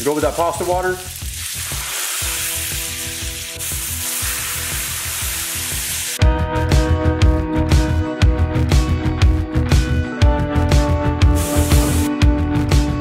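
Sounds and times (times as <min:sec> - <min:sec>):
water sizzling in hot pan: 0:00.0 - 0:06.2, 0:11.4 - 0:12.1
background music with a beat: 0:01.2 - 0:13.0.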